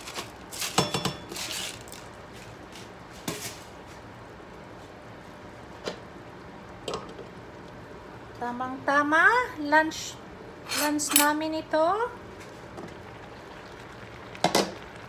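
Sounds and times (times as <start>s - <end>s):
pots and lids clinking: 0.6s - 1.7s.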